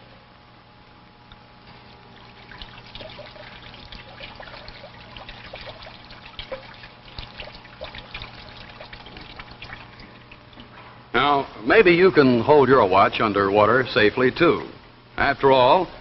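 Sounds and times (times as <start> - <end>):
tap water splashing on hand: 2.2 - 10.8.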